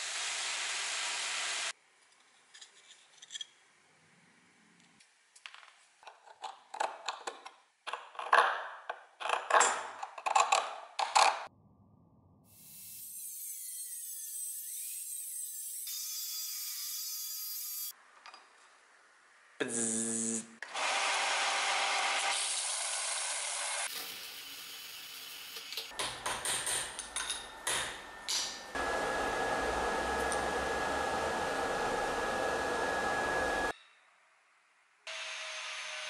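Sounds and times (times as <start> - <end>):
angle grinder cutting steel: 20.7 - 25.9.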